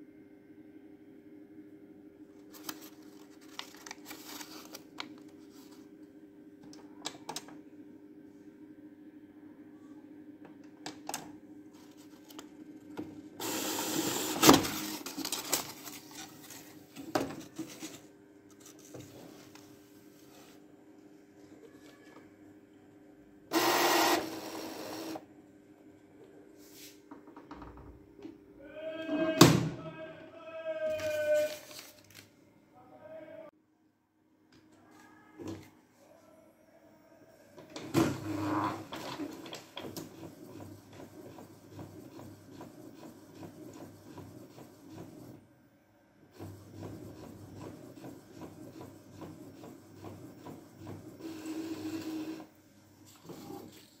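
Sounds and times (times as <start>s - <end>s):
paper crinkling and clicks: 2.5s - 5.8s, 14.6s - 16.8s, 31.0s - 32.3s
printer mechanism whine: 13.4s - 16.2s, 23.5s - 25.3s, 37.6s - 45.4s, 46.3s - 53.8s.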